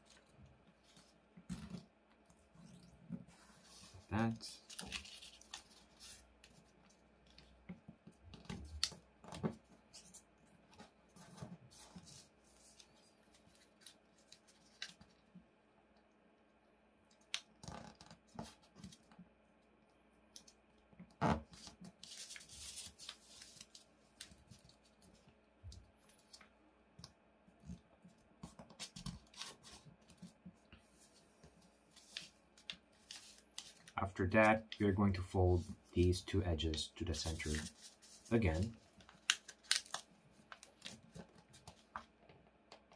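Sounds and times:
paper rustling and crinkling: 2.7 - 7.6, 10.8 - 15.2, 21.4 - 25.2, 28.4 - 30.4, 31.0 - 34.6, 37.1 - 42.2.

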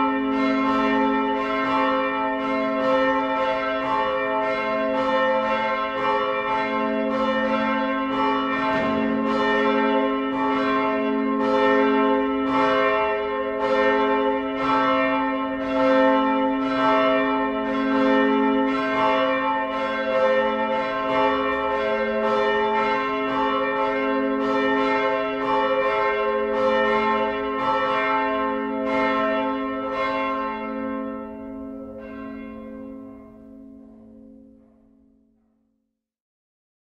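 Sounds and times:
church bells ringing: 0.0 - 35.5.

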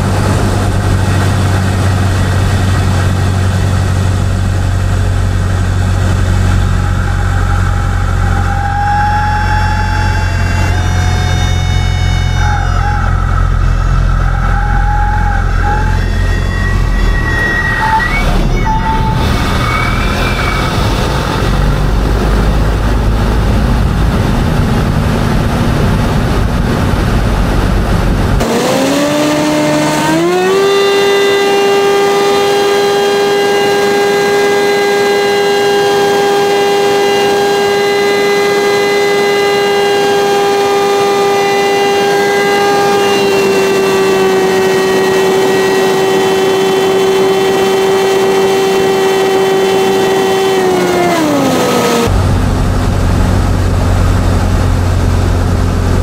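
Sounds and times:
stall warning horn wailing: 0.0 - 21.8, 28.4 - 52.4
aircraft engine rumble: 0.0 - 28.4, 52.1 - 56.0.

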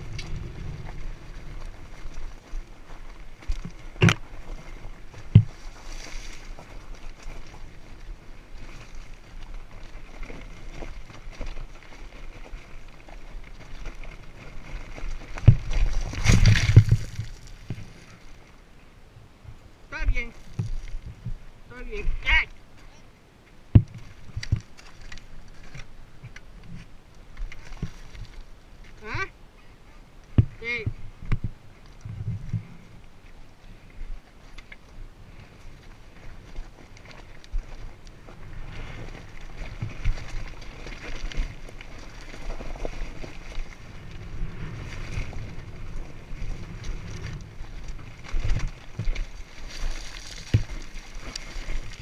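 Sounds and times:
boots crunching on loose rock: 0.0 - 18.4, 35.4 - 52.0
dirt bike being handled: 0.0 - 18.5, 30.3 - 52.0
wind rumbling on microphone: 0.0 - 52.0.

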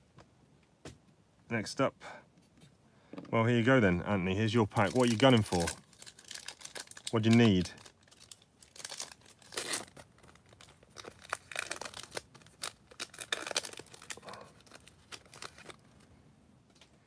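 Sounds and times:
foil wrapper tearing and crinkling: 4.7 - 16.0.

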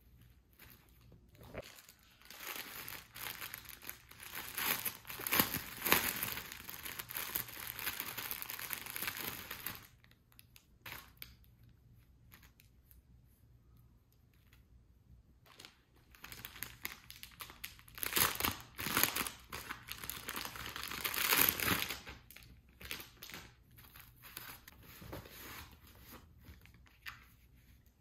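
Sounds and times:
plastic bag crinkling: 0.6 - 10.2, 15.5 - 23.5.

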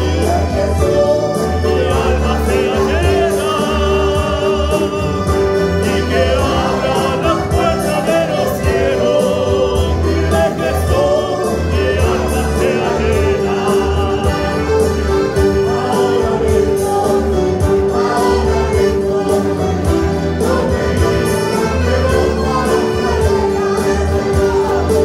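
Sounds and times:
bass and beat accompaniment: 0.0 - 25.0
choir singing gospel: 0.0 - 25.0.

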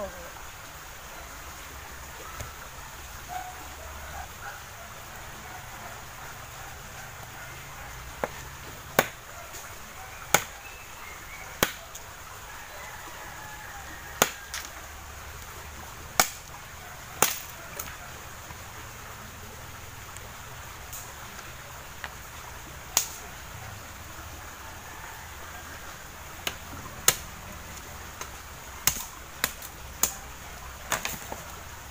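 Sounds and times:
machete chopping wood: 8.2 - 9.6, 10.3 - 10.6, 11.6 - 12.0, 14.2 - 14.7, 16.1 - 16.5, 17.2 - 17.9, 26.4 - 27.4, 28.2 - 30.2, 30.9 - 31.5.

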